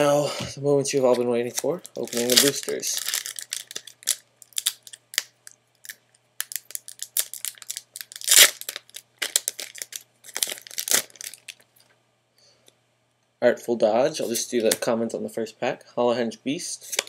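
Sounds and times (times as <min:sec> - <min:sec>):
foil wrapper tearing and crinkling: 0:01.4 - 0:11.6.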